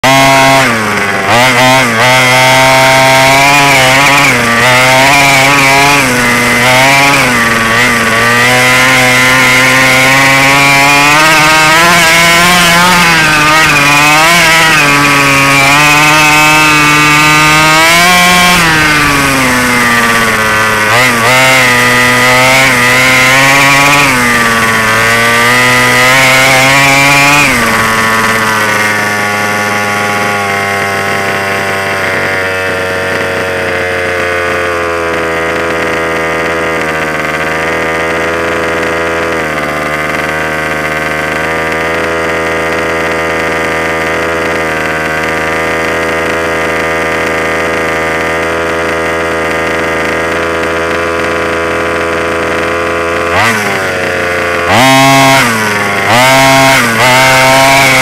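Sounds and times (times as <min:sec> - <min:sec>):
two-stroke engine revving: 0:00.0 - 0:58.0.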